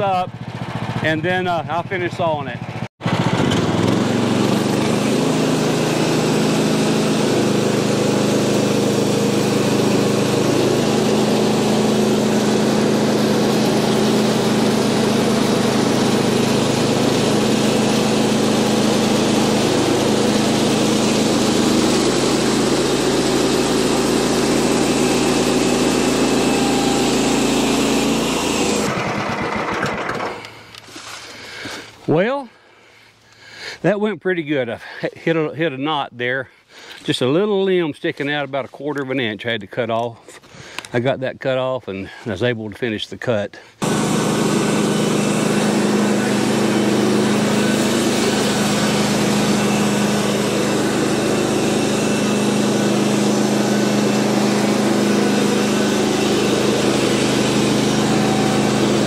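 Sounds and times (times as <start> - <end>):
sawmill engine running under load: 0.0 - 30.8, 43.8 - 59.0.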